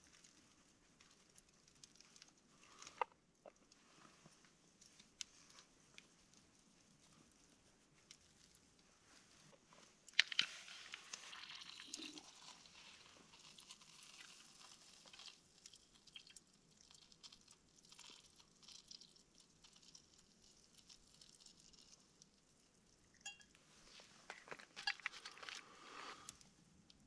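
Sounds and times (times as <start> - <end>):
faint crackles: 0.0 - 27.0
crackling hiss: 7.0 - 27.0
pot clicks: 23.2 - 23.6.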